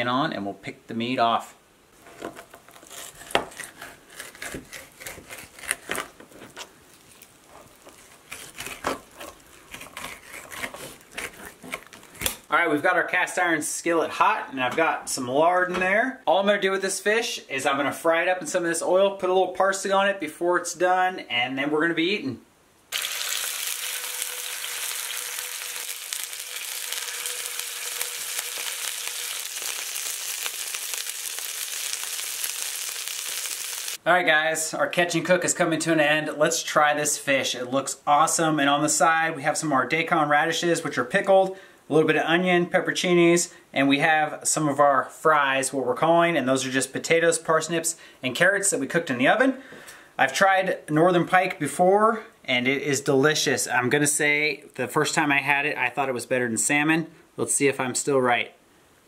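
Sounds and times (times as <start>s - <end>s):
knife scraping cutting board: 2.0s - 12.4s
fish sizzling in a skillet: 22.9s - 34.0s.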